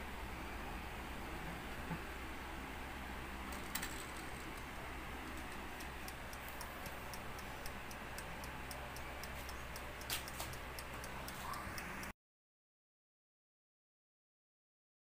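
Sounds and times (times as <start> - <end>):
wind-up timer ticking: 3.7 - 12.1
timer click: 5.3 - 12.1.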